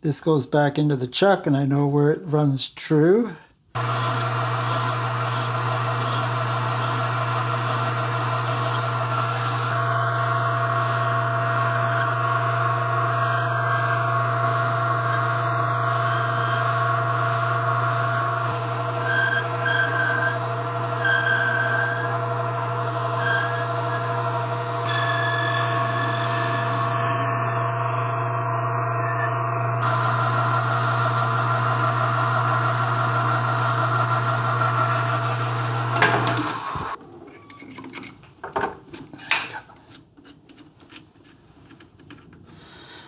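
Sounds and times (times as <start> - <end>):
filing metal on lathe: 3.8 - 28.6, 29.8 - 37.6
metal lathe motor humming: 3.8 - 37.9.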